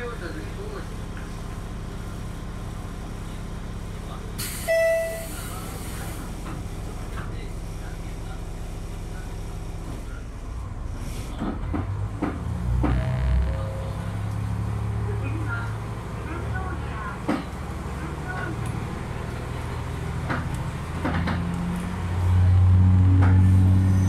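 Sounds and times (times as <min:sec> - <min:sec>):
diesel railcar engine idling: 0:00.0 - 0:24.0
brief tone: 0:04.7 - 0:05.4, 0:12.8 - 0:14.3
diesel engine revving: 0:10.6 - 0:24.0
clunks: 0:20.2 - 0:21.9.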